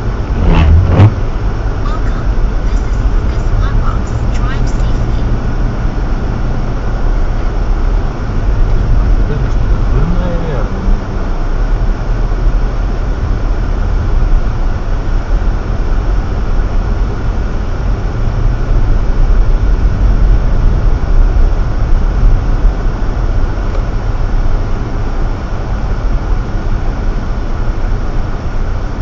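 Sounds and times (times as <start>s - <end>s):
tyre rumble on snowy road: 0.0s - 4.3s
car engine running: 0.0s - 29.0s.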